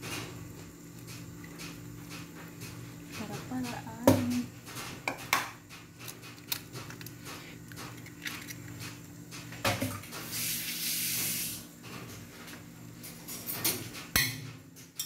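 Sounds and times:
steady low hum: 0.0s - 10.4s
hiss: 10.2s - 11.7s.

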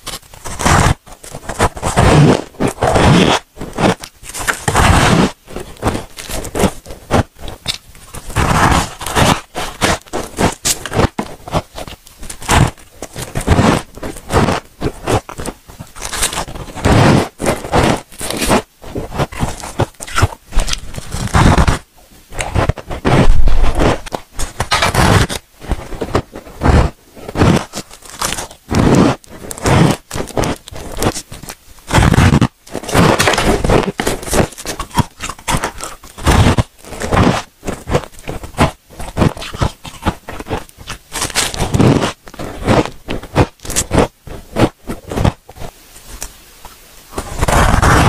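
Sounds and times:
person chewing crunchy frost: 0.0s - 45.7s, 47.2s - 48.0s.

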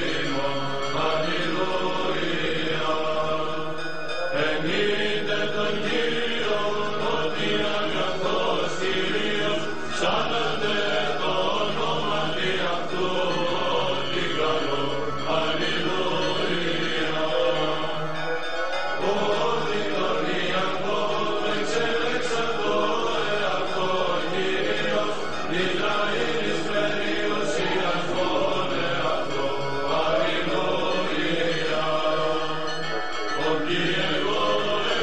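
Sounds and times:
voices chanting slow melody: 0.0s - 35.0s.

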